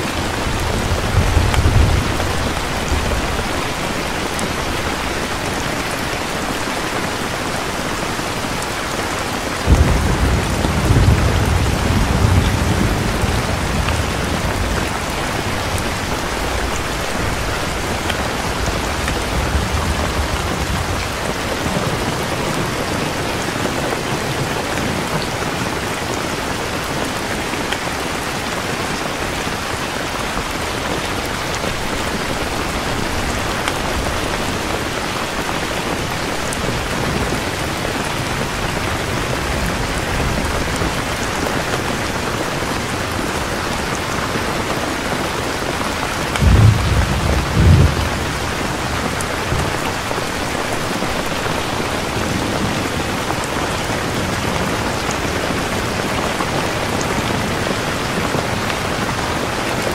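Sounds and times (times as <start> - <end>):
heavy rain falling: 0.0 - 59.9
distant thunder rumble: 0.1 - 6.6, 9.3 - 25.2, 45.9 - 56.1.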